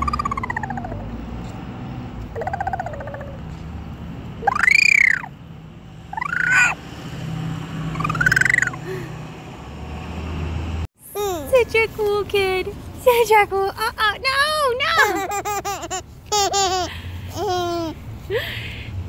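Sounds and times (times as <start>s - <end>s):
high-pitched rising and falling calls: 0.0s - 1.2s, 2.3s - 3.4s, 4.4s - 5.3s, 6.1s - 6.8s, 7.9s - 9.0s.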